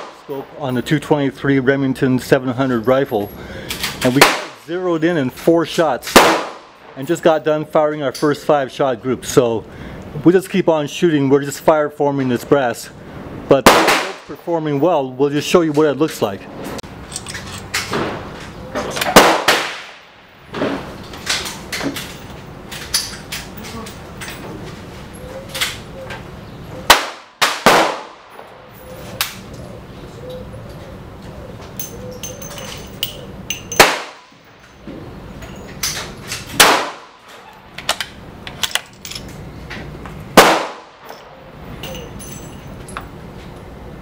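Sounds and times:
sharp cracks: 4.1 - 4.7, 6.0 - 7.0, 13.6 - 14.4, 19.0 - 21.8, 26.8 - 28.6, 33.8 - 34.4, 36.4 - 38.8, 40.4 - 41.1
rifle shots: 4.2 - 4.6, 6.1 - 6.8, 13.6 - 14.4, 19.1 - 20.1, 26.9 - 28.5, 33.8 - 34.3, 36.6 - 37.3, 40.4 - 41.0
rifle bolt being worked: 17.1 - 17.9.

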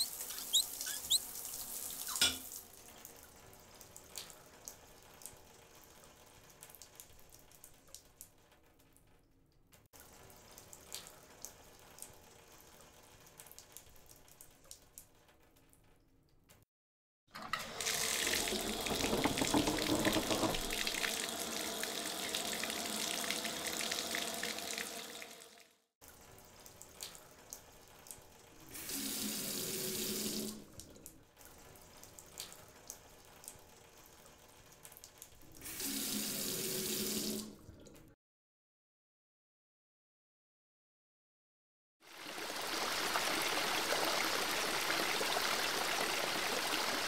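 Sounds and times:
water running from a tap: 0.0 - 8.2, 17.5 - 38.0
water pouring from a spout: 17.5 - 37.9, 42.1 - 47.0.

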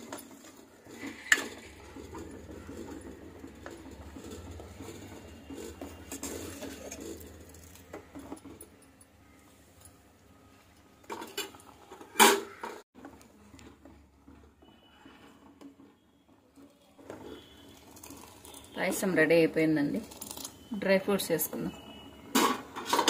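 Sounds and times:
steel spoon scraping a steel pot: 0.0 - 8.7, 17.1 - 20.8.

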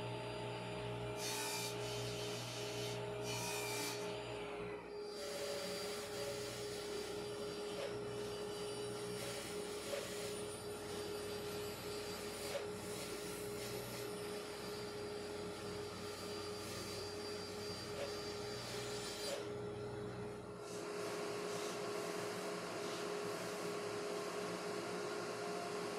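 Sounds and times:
band saw cutting wood: 1.2 - 4.4, 5.0 - 15.1, 15.7 - 19.5.

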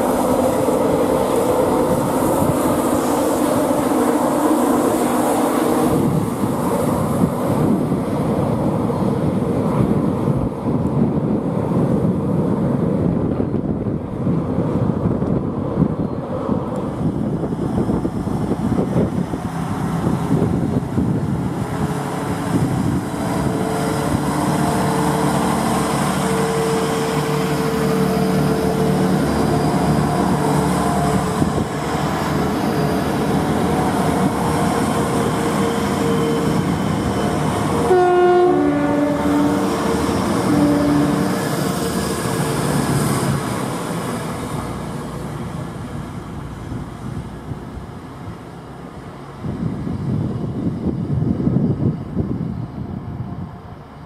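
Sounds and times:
train running noise: 0.0 - 54.0
two-tone train horn: 26.2 - 28.9, 34.6 - 42.6.

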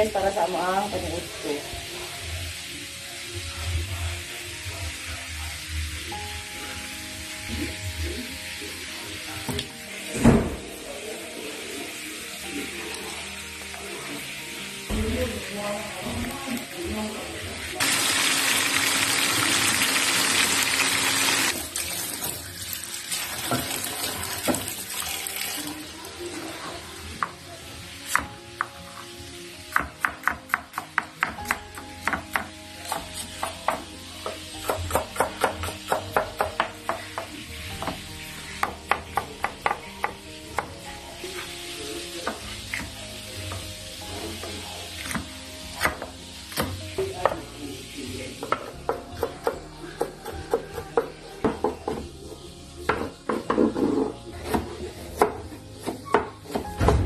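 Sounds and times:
fish sizzling in oil: 0.0 - 10.2, 10.8 - 29.8
soft background music: 0.0 - 57.0
knife chopping on cutting board: 29.7 - 38.0.

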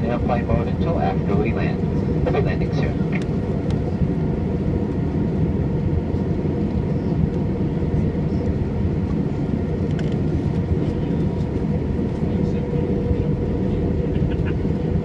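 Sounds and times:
airliner cabin engine roar: 0.0 - 15.0.

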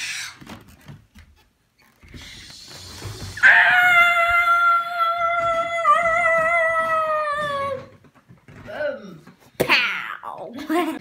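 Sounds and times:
child screaming: 3.4 - 7.9.

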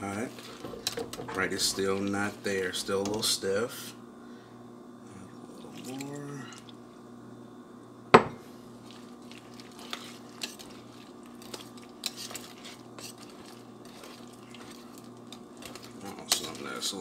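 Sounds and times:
whisk stirring mashed potatoes: 0.0 - 3.4, 8.7 - 17.0
whisk clicking against pot: 9.8 - 16.8.

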